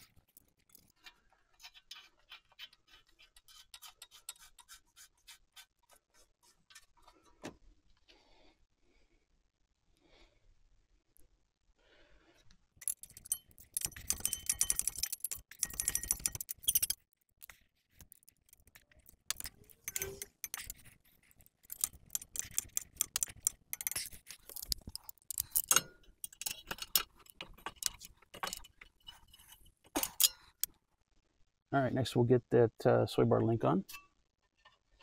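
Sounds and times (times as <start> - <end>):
metal tools clinking and rattling: 12.8 - 30.7.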